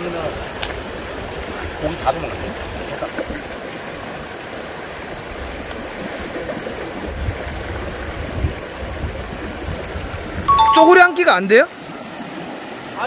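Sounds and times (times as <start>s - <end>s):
stream flowing over rocks: 0.0s - 13.0s.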